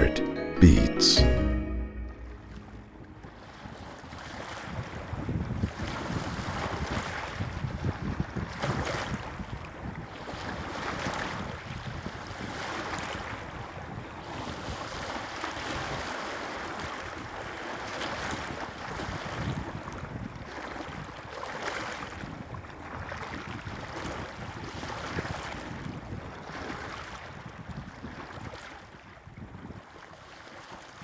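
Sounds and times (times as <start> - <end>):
wind buffeting microphone: 4.4 - 12.6.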